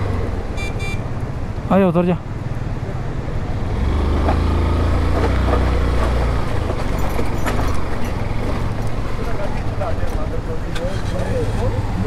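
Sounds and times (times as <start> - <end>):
bike knocking and rattling: 4.2 - 11.6.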